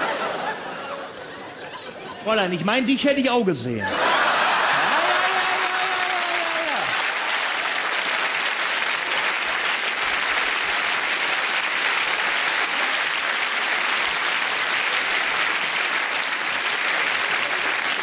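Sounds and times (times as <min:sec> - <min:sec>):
audience applauding: 0:03.9 - 0:18.0.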